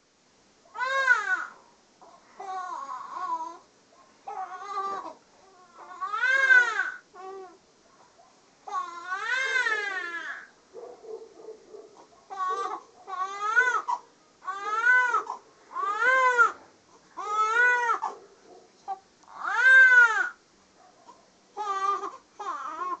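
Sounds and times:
baby crying: 0.8s - 1.6s, 2.4s - 3.6s, 4.3s - 7.6s, 8.7s - 10.5s, 12.3s - 16.6s, 17.2s - 18.1s, 18.9s - 20.4s, 21.6s - 23.0s.

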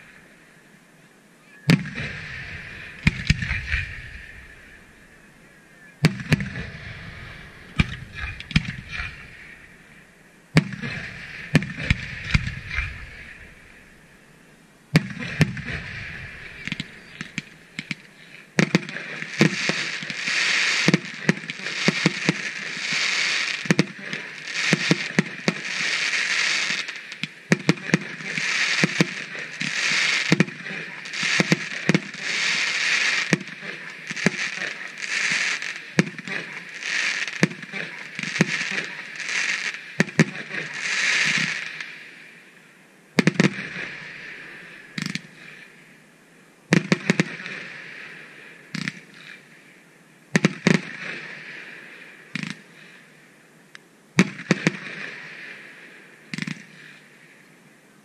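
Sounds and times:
firework shells bursting: 1.7s - 5.2s, 6.0s - 10.0s, 10.6s - 14.0s, 15.0s - 22.5s
firework crackling: 1.7s - 5.4s, 6.0s - 42.6s, 43.2s - 45.8s
rapid sharp firework reports: 1.7s - 14.2s, 15.0s - 42.3s.

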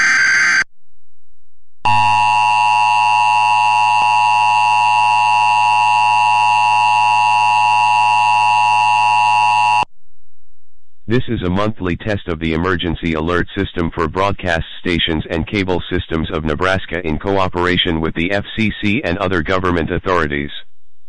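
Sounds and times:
warbling digital screech: 0.0s - 0.6s
steady two-tone alarm: 1.9s - 9.9s.

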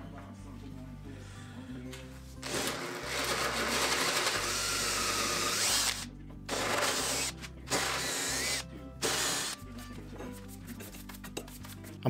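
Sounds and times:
power drill boring wood: 2.4s - 9.6s.

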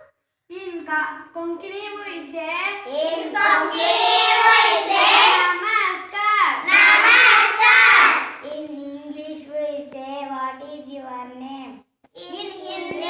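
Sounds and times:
children singing in chorus: 3.3s - 5.4s.

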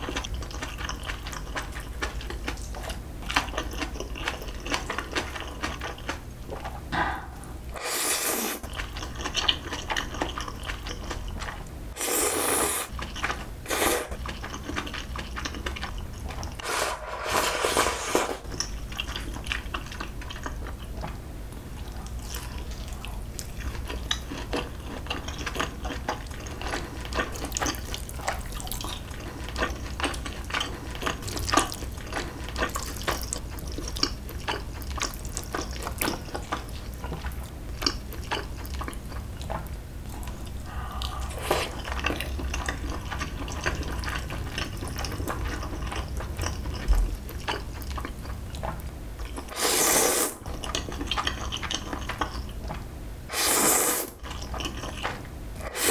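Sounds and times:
wet chewing and smacking: 0.0s - 6.9s, 8.6s - 11.8s, 12.9s - 16.6s, 18.4s - 49.6s, 50.5s - 52.9s, 54.2s - 55.4s
slurping noodles: 7.8s - 8.8s, 12.0s - 12.9s, 13.7s - 14.2s, 16.6s - 18.4s, 40.6s - 41.9s, 49.5s - 50.4s, 53.3s - 54.2s, 55.6s - 55.9s.

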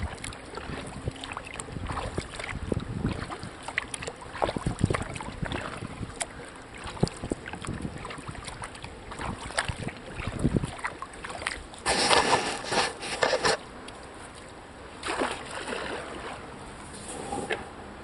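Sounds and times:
water drips: 0.0s - 11.8s
paddle splashing in water: 0.0s - 13.7s, 14.3s - 17.7s.

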